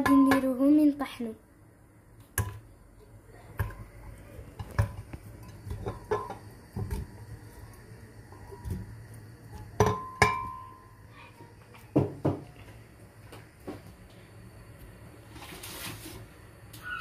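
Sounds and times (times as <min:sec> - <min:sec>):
kitchenware clinking against glass: 0:09.8 - 0:10.7.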